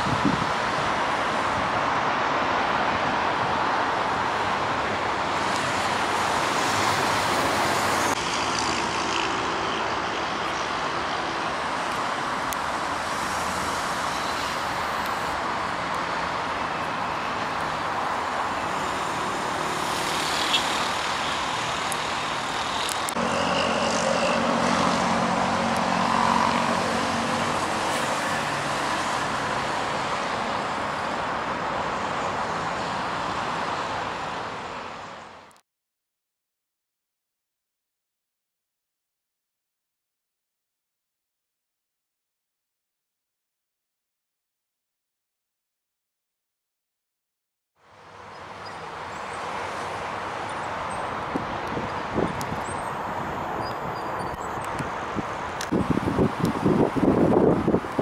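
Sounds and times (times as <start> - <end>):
heavy road traffic: 0.0 - 35.6, 47.8 - 58.0.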